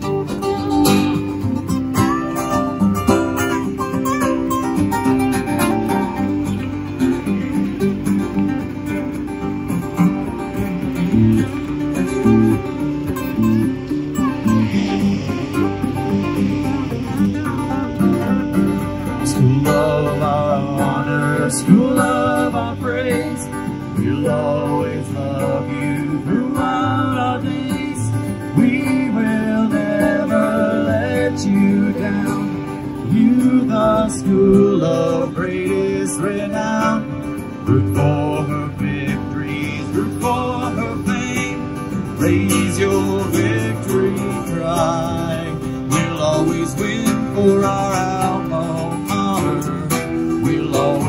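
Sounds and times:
guitar accompaniment: 0.0 - 51.0
person singing long notes: 16.2 - 37.1.

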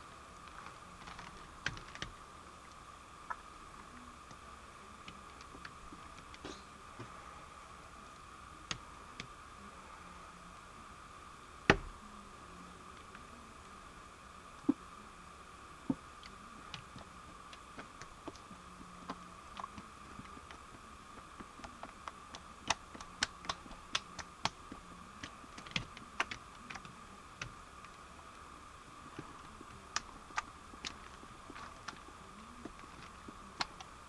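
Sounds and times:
faint high hum: 0.0 - 34.0
wet mud clicking and tapping: 21.2 - 27.6.

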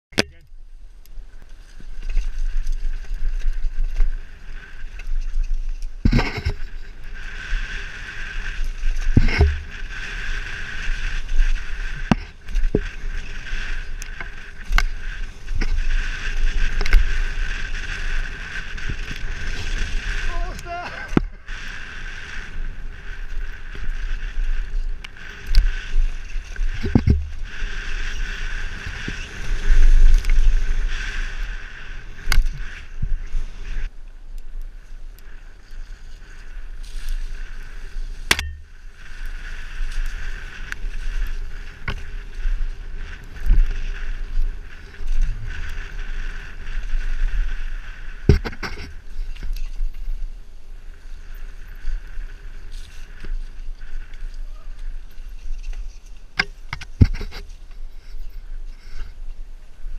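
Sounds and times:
tyre and trail noise: 0.1 - 59.9
wind rushing over camera: 0.3 - 59.9
bike knocks and rattles: 6.0 - 6.9, 9.0 - 10.0, 26.7 - 27.5, 48.2 - 49.0.

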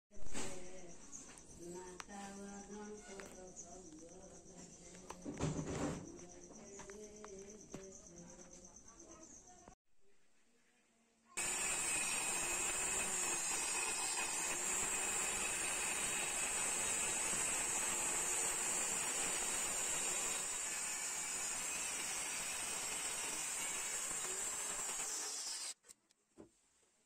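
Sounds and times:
circular saw cutting wood: 11.4 - 25.8.

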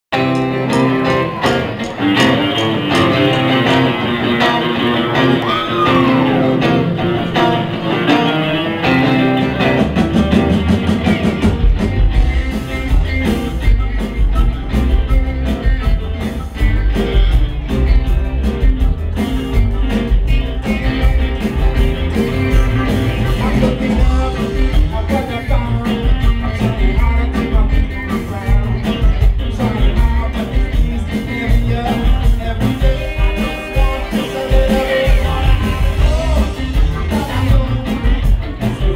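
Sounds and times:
drums: 0.0 - 38.9
electric guitars: 0.1 - 38.9
upright bass: 0.1 - 38.9
harmonica melody: 12.0 - 38.7.

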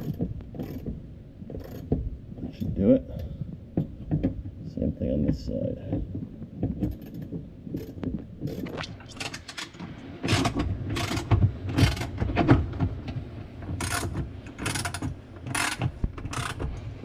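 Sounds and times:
socket ratchet clicking: 13.8 - 16.6.

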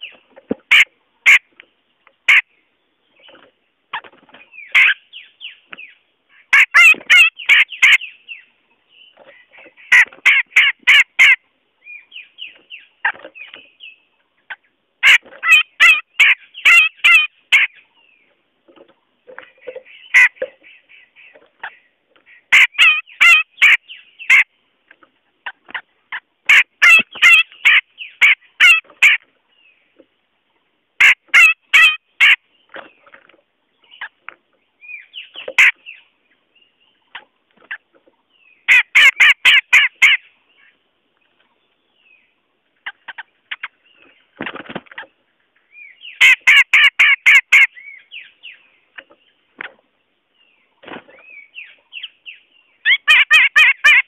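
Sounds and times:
bird harsh chattering call: 4.6 - 5.6, 6.3 - 8.4, 15.0 - 17.8, 19.6 - 24.5, 25.4 - 29.2, 45.9 - 48.6, 51.6 - 54.0.

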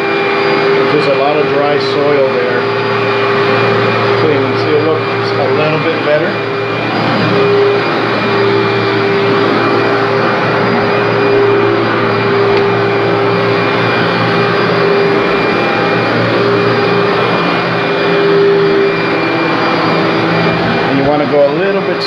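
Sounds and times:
vacuum cleaner running on carpet: 0.0 - 22.0.

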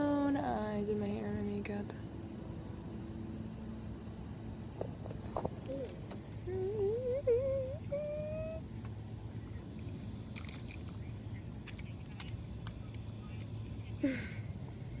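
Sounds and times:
low background drone: 0.0 - 15.0
person humming a tune: 5.7 - 8.6.

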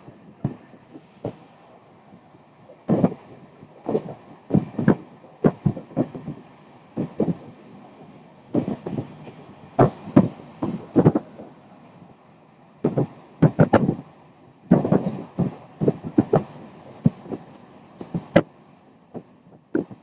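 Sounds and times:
low steady rumble: 0.0 - 20.0
train wheels knocking on track: 18.0 - 18.5.

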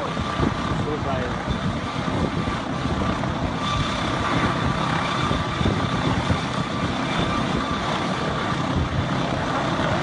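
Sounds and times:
helicopter hovering: 0.0 - 10.0.

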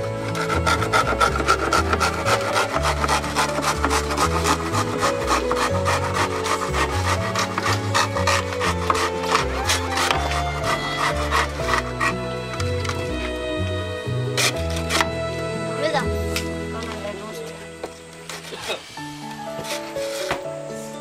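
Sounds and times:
hand saw cutting bamboo: 0.0 - 13.3, 14.2 - 15.2, 18.2 - 20.5
background music with bass: 0.0 - 21.0.

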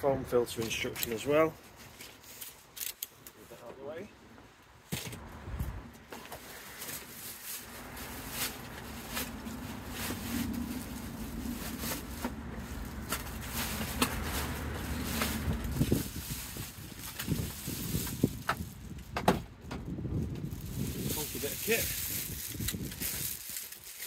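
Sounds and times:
wind rumbling on microphone: 5.2 - 6.1, 6.7 - 24.0
steady low hum: 7.4 - 16.3.

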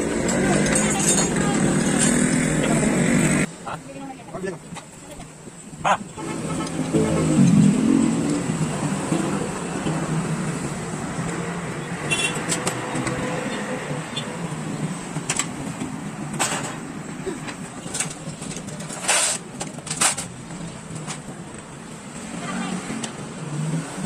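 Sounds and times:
metal parts clinking in a tray: 0.3 - 1.4.

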